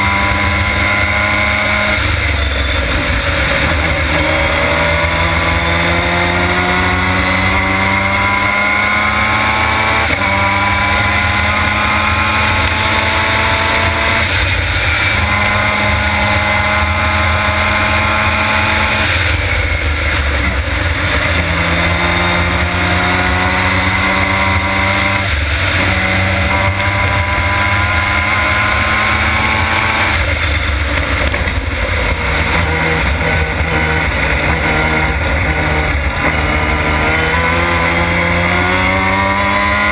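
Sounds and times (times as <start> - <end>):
race car engine at full throttle: 0.0 - 39.9
wind and road noise: 0.0 - 39.9.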